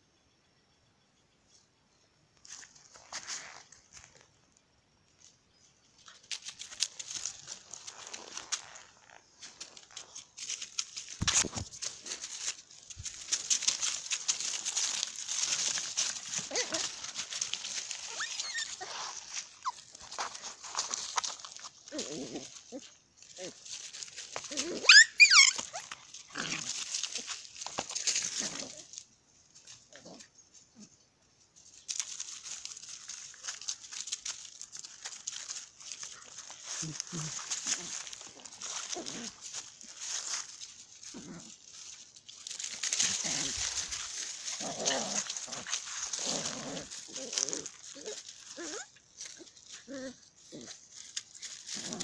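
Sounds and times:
leaves crunching underfoot: 0:02.4 - 0:04.3, 0:05.9 - 0:30.9, 0:31.6 - 0:52.0
puppy whimpering: 0:24.5 - 0:26.0, 0:47.1 - 0:50.7.

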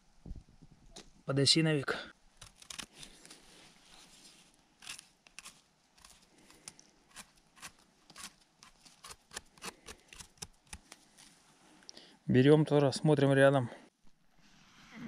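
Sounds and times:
knife scraping mushroom stem: 0:02.4 - 0:03.4, 0:04.8 - 0:11.0.

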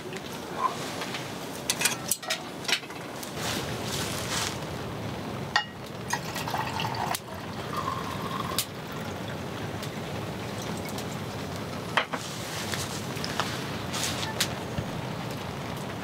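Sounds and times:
liquid pouring into a cup: 0:06.1 - 0:09.4.

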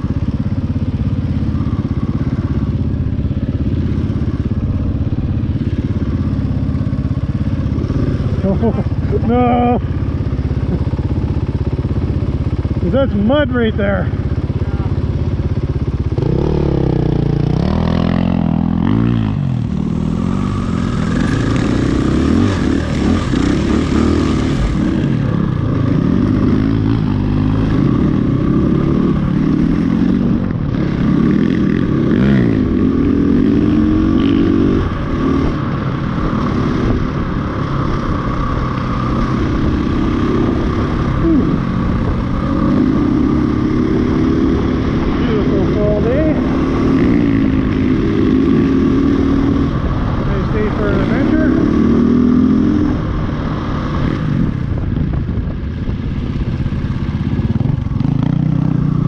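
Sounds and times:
motorcycle engine revving: 0:00.0 - 0:59.0
wind on microphone: 0:51.6 - 0:59.0.

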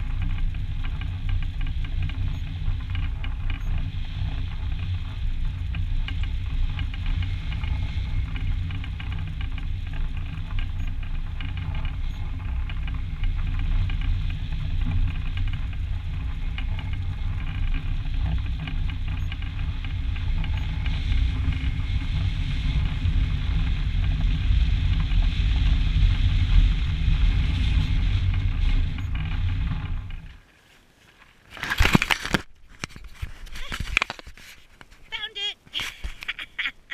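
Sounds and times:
wind buffeting microphone: 0:00.0 - 0:30.4.

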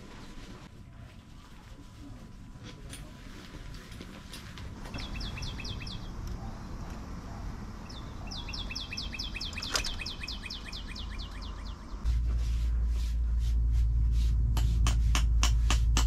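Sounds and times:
small bird singing whistled notes: 0:04.9 - 0:06.1, 0:07.9 - 0:12.0.

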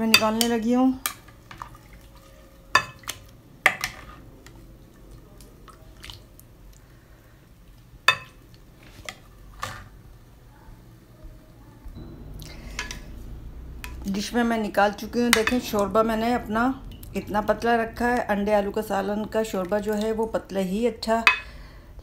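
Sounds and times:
gravy sloshing and dripping: 0:01.0 - 0:09.8, 0:14.7 - 0:20.5.

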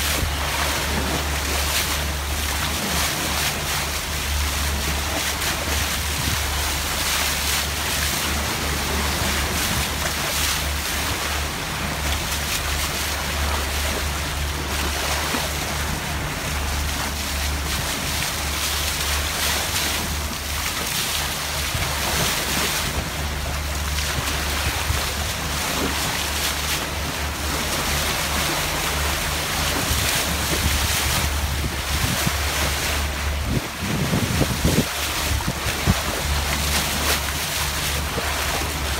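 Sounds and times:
water rushing past boat bow: 0:00.0 - 0:38.9
wind buffeting microphone: 0:29.6 - 0:36.6.

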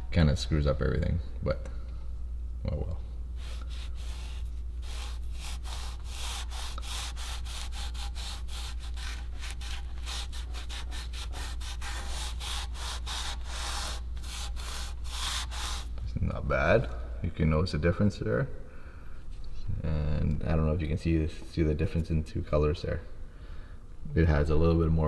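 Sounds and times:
steady low hum: 0:00.0 - 0:25.0
cloth scrubbing on metal: 0:03.4 - 0:16.0.

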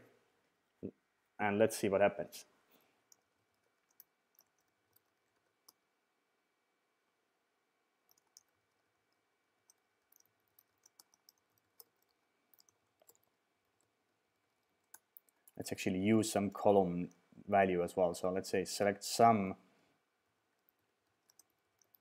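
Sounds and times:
keyboard typing clicks: 0:08.1 - 0:13.3, 0:20.6 - 0:22.0.

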